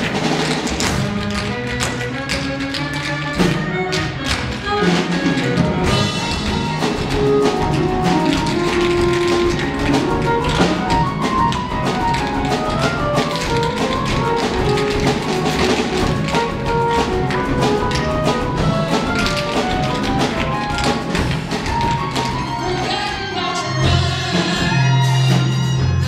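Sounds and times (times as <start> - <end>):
tap shoes striking floor: 0.0 - 23.1
melody with a beat: 5.7 - 24.3.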